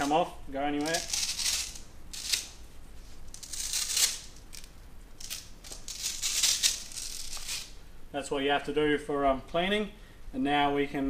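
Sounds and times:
velcro ripping apart: 0:00.8 - 0:02.6, 0:03.3 - 0:07.8.

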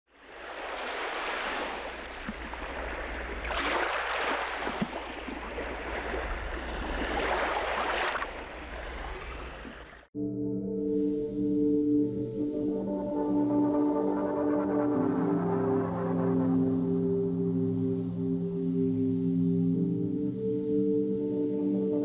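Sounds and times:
ocean waves washing: 0:00.1 - 0:10.1
music with ringing tones: 0:10.2 - 0:22.0.

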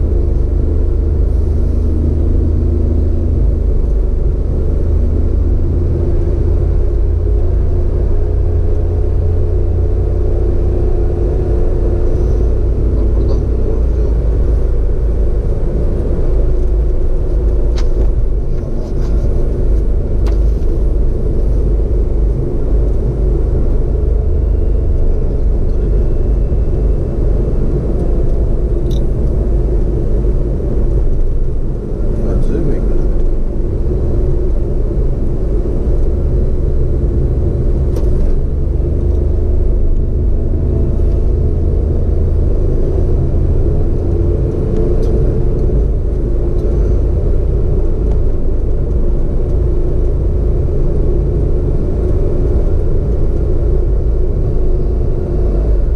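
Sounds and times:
car engine and tyre rumble: 0:00.0 - 0:55.9.

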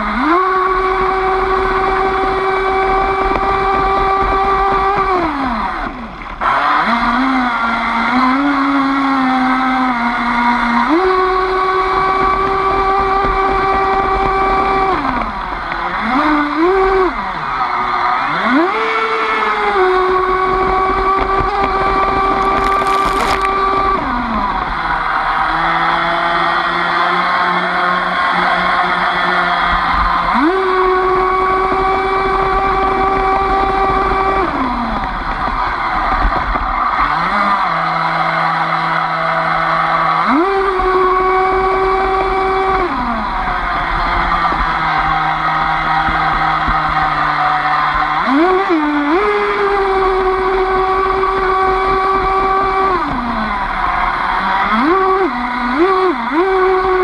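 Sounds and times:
electric boat motor whining: 0:00.0 - 0:57.0
electric motor whining: 0:18.3 - 0:24.8.

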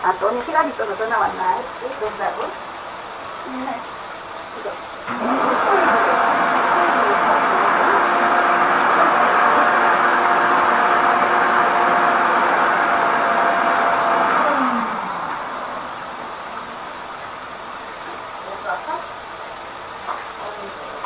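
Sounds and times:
vacuum motor whining: 0:05.0 - 0:18.3.

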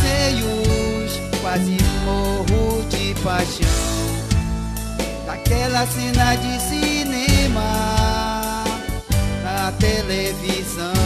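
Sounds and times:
sharp drum hits: 0:00.0 - 0:08.3
live pop band music: 0:00.0 - 0:11.0.

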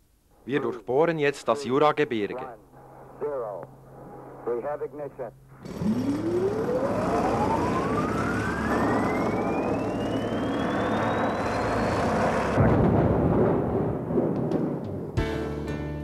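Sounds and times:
rushing whoosh with whistling tone: 0:06.9 - 0:12.6.

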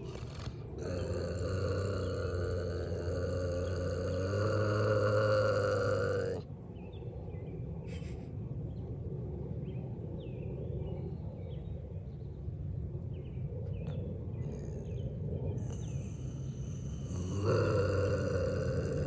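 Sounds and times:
bobcat growling: 0:00.0 - 0:06.4, 0:15.6 - 0:19.0
small birds chirping: 0:13.7 - 0:19.0.

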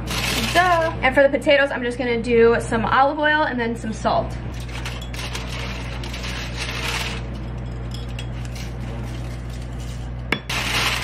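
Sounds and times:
steady low hum: 0:00.0 - 0:11.0
aluminium foil crinkling: 0:04.6 - 0:07.6, 0:08.3 - 0:11.0.

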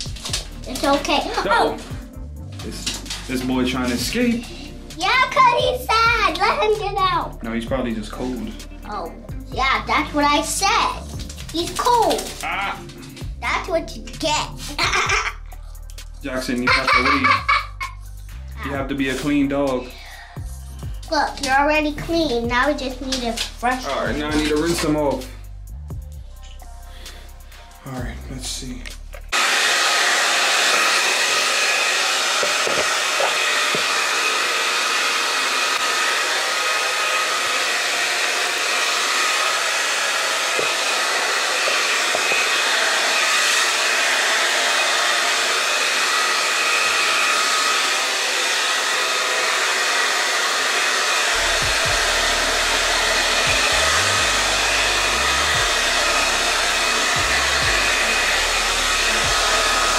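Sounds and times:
hair dryer running: 0:00.0 - 0:07.0, 0:14.8 - 0:15.3, 0:16.4 - 0:18.0, 0:22.6 - 0:25.2, 0:29.2 - 0:59.9.

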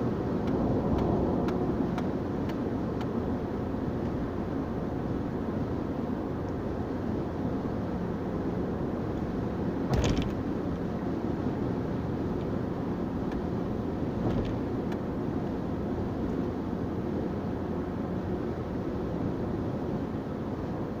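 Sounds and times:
car road and engine noise: 0:00.0 - 0:21.0.

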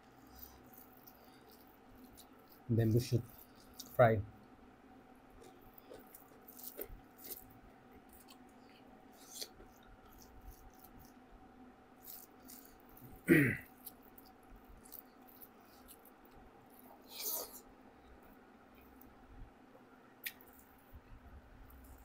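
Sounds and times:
eating and chewing: 0:00.0 - 0:04.1, 0:05.2 - 0:19.2
faint steady hum: 0:00.0 - 0:22.0
person's short vocal sound: 0:13.3 - 0:13.6.

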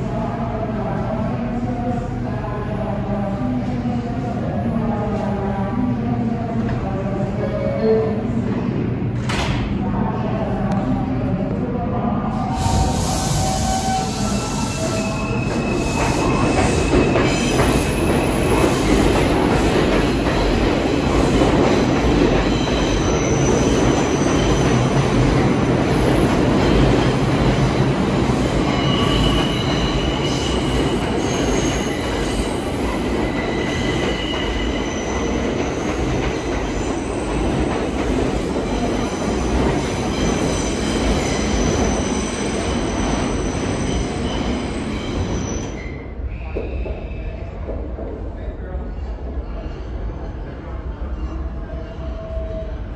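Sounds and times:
train wheels rumbling on rail: 0:12.4 - 0:52.9.

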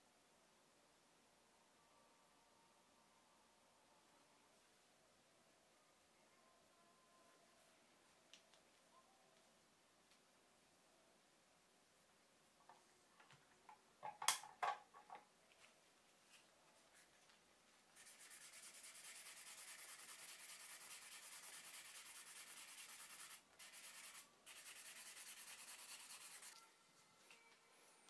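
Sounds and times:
sandpaper rubbing on wood: 0:18.0 - 0:26.6.

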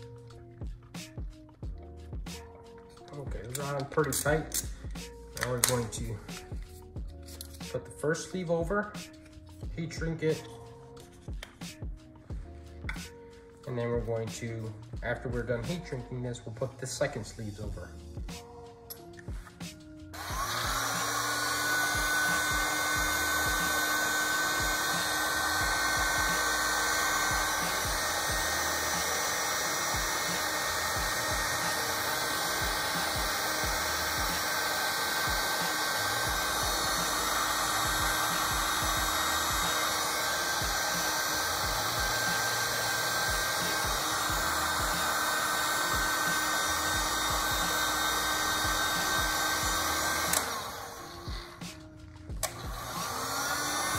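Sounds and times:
heat gun whining: 0:03.1 - 0:06.5, 0:18.9 - 0:53.9.

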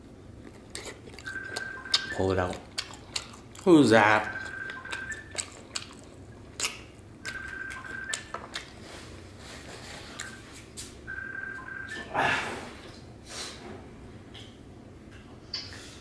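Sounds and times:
phone ringing: 0:01.2 - 0:02.4, 0:04.0 - 0:05.3, 0:07.3 - 0:08.3, 0:11.1 - 0:12.1.

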